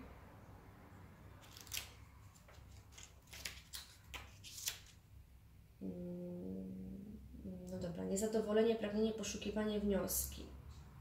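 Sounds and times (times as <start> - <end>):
paper rustling and clicking: 1.4 - 5.0
woman humming mmm: 5.8 - 7.7.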